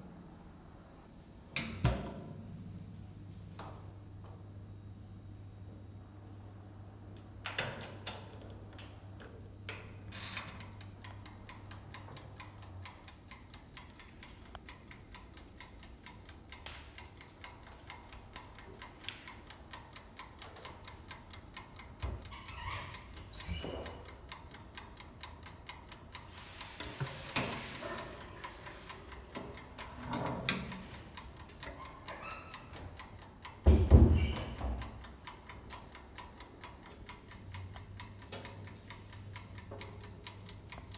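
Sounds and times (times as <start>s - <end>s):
oven timer ticking: 7.2s - 40.9s
timer knob clicks: 9.7s - 33.6s, 34.2s - 40.9s.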